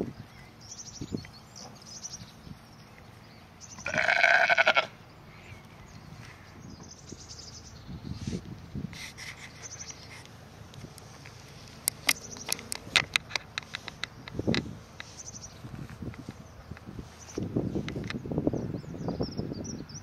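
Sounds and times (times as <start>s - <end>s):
sheep bleating: 3.8s - 5.0s.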